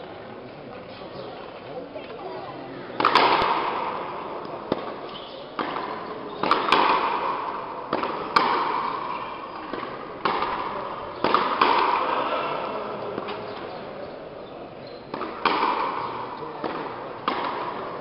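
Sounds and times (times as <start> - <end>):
rubber ball cracking off rackets: 3.0 - 12.4.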